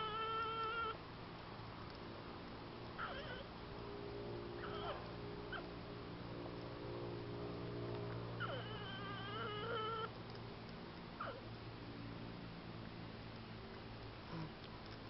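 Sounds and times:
porcupine whining: 0:00.0 - 0:01.0, 0:03.0 - 0:03.5, 0:04.5 - 0:05.7, 0:08.3 - 0:10.1, 0:11.2 - 0:11.5
steady low hum: 0:00.0 - 0:15.0.

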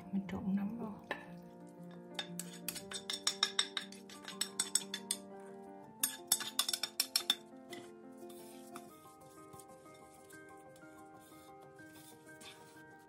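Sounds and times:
background music: 0:00.0 - 0:13.0
utensils clinking against bowl: 0:01.9 - 0:05.3, 0:06.0 - 0:07.9.

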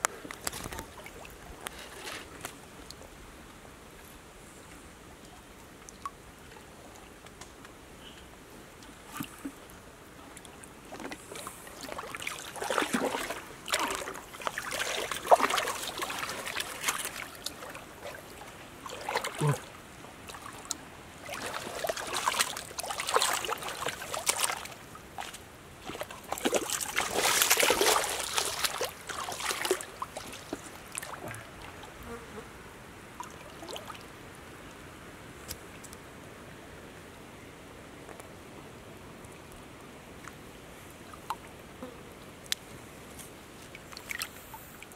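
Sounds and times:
stream water splashing: 0:00.0 - 0:03.2, 0:08.7 - 0:32.0, 0:32.6 - 0:35.8, 0:40.2 - 0:44.9.

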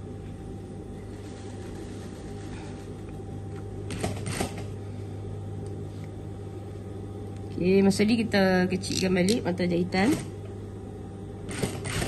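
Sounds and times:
sewing machine motor humming: 0:11.5 - 0:12.0.

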